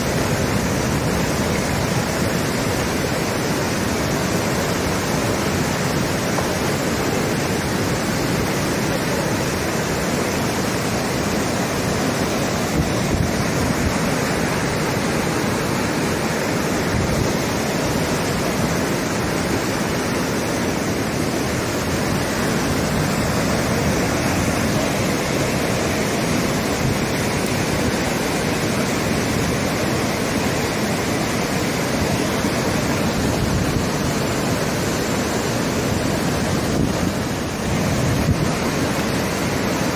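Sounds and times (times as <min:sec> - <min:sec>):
floodwater rushing over causeway: 0:00.0 - 0:39.9.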